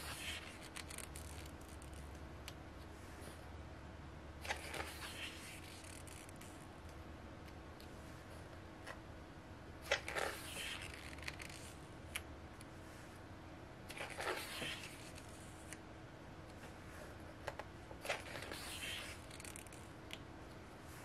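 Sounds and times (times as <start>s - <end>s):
glossy pages turning: 0.0s - 2.2s, 4.4s - 6.6s, 9.9s - 11.8s, 13.9s - 15.8s, 18.0s - 19.8s.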